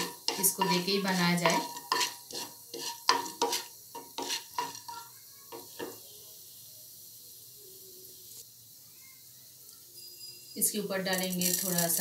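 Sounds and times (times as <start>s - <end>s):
spatula scraping a pan: 0.0s - 6.0s
lentils sizzling in oil: 0.0s - 12.0s.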